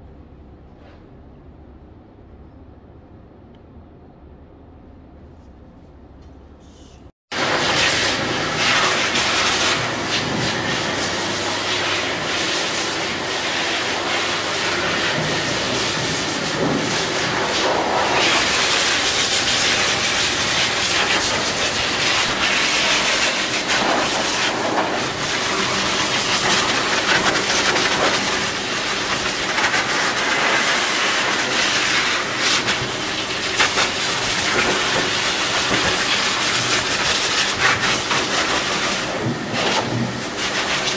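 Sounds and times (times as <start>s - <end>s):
dryer blowing air: 7.3s - 40.9s.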